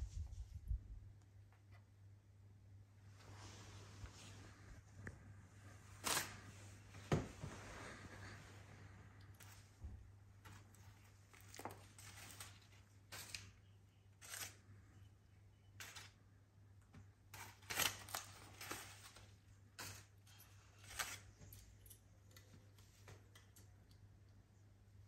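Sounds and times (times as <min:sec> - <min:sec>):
faint steady hum: 0:00.0 - 0:25.0
bird tearing paper with beak: 0:11.3 - 0:13.6, 0:14.2 - 0:14.6, 0:17.3 - 0:20.1.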